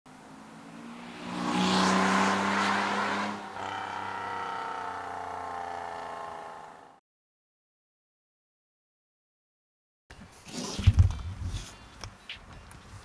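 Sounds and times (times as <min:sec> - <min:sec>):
car driving past: 0:00.2 - 0:07.0.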